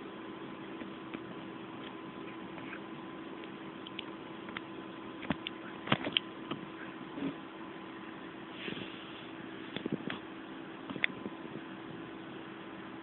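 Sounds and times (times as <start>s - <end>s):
faint hum: 0.0s - 13.0s
puppy paws scratching phone: 0.8s - 4.6s.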